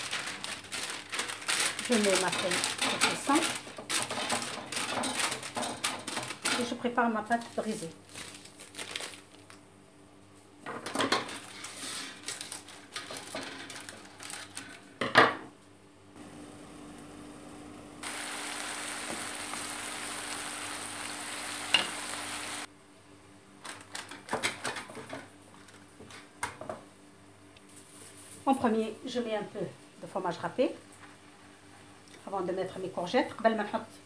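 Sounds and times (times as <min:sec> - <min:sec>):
pastry and paper rustling: 0:00.0 - 0:09.7, 0:10.4 - 0:15.0, 0:27.6 - 0:29.1
vegetables hissing in a pan: 0:18.0 - 0:22.7.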